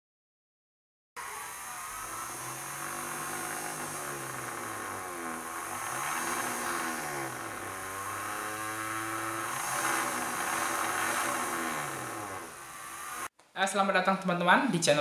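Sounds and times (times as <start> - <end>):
small motors whirring: 1.2 - 13.3.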